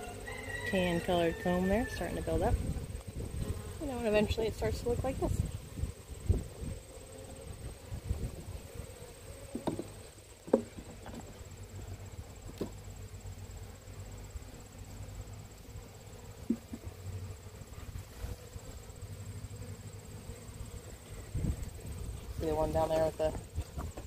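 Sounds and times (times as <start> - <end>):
bees humming: 0.0 - 24.0
wooden knocks and clicks: 9.6 - 9.9, 10.5 - 11.3.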